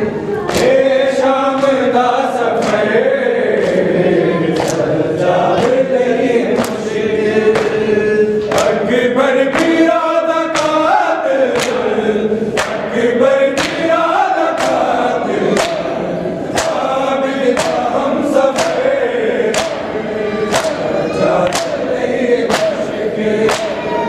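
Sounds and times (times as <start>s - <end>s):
men chanting together: 0.0s - 24.0s
hands slapping chests: 2.6s - 2.9s, 4.6s - 4.9s, 6.6s - 6.8s, 7.6s - 7.8s, 8.4s - 8.8s, 11.6s - 11.9s, 12.6s - 13.0s, 13.6s - 13.9s, 14.6s - 15.0s, 15.6s - 15.9s, 17.5s - 17.9s, 18.5s - 18.8s, 19.5s - 19.9s, 20.5s - 21.8s, 22.5s - 22.8s, 23.5s - 23.8s.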